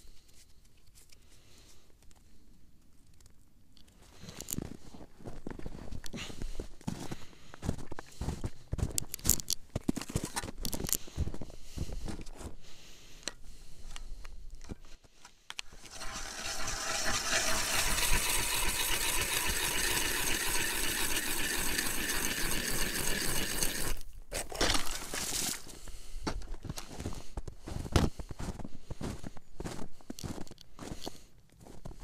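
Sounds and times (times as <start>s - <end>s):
footsteps crunching in snow: 4.5s - 9.0s, 24.5s - 32.0s
ice auger grinding through ice: 15.7s - 25.6s.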